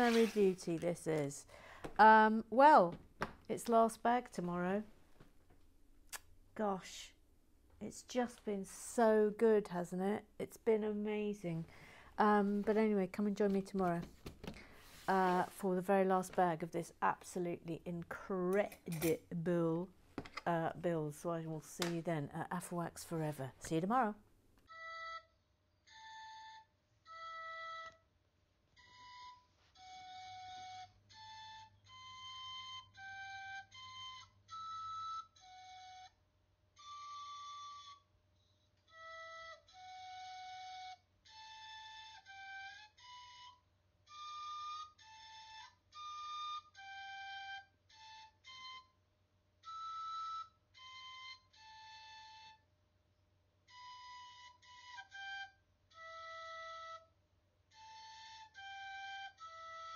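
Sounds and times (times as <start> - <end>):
solo flute melody: 24.7 - 38.2, 38.8 - 52.8, 53.7 - 59.9.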